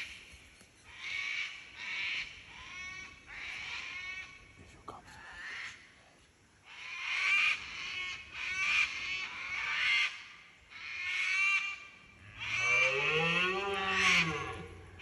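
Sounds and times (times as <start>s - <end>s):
birds calling: 6.6s - 15.0s.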